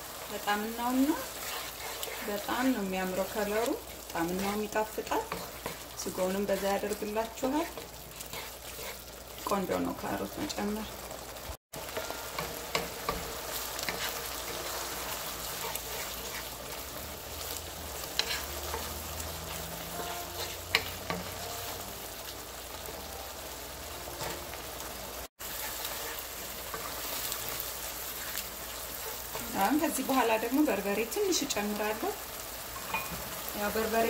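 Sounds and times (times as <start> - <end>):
vegetables sizzling in a frying pan: 0.0 - 34.0
wooden spoon scraping a pan: 0.2 - 10.6, 11.8 - 21.9, 25.4 - 31.7.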